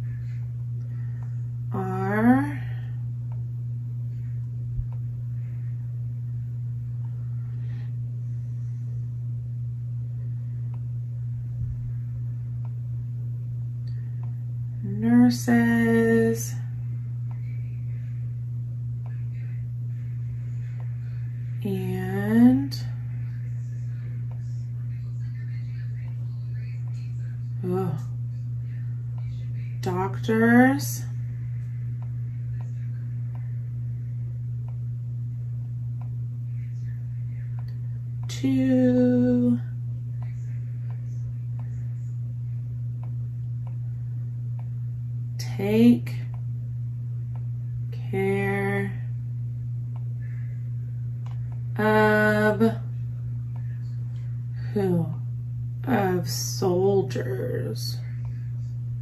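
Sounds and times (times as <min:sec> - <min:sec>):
low electrical hum: 0:00.0 - 0:59.0.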